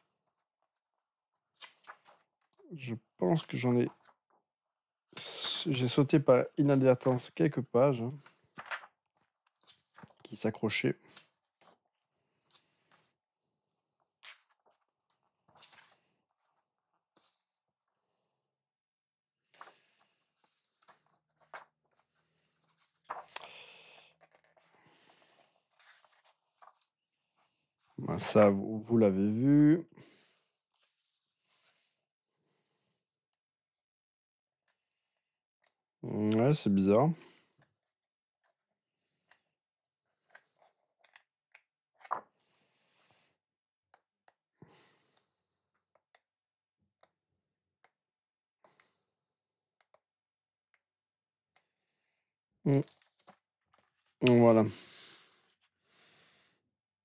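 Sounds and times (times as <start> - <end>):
paper rustling: 1.5 - 2.5, 8.2 - 10.2, 13.9 - 17.5, 19.6 - 23.4, 24.2 - 26.9, 42.0 - 42.4
paper pages swishing: 8.3 - 10.2, 14.0 - 17.4, 25.4 - 26.9.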